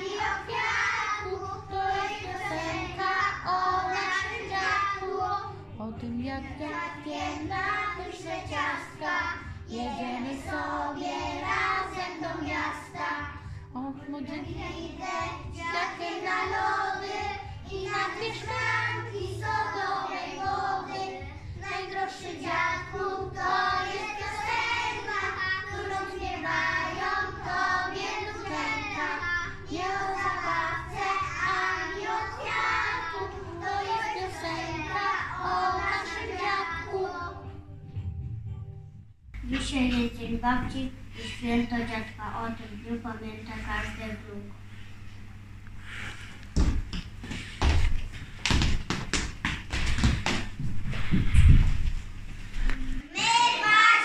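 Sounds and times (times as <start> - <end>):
children singing: 0.0 - 5.5, 6.7 - 13.3, 14.6 - 37.4, 53.1 - 54.0.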